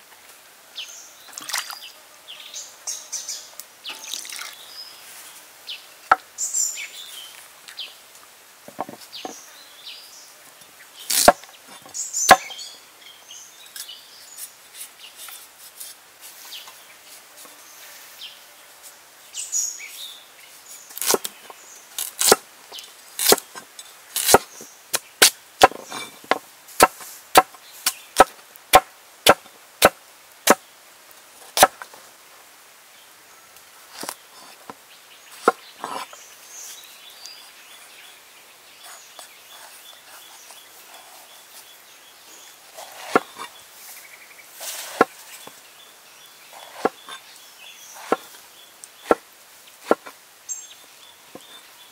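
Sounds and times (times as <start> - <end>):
knife chopping on wooden table: 43.0 - 43.3.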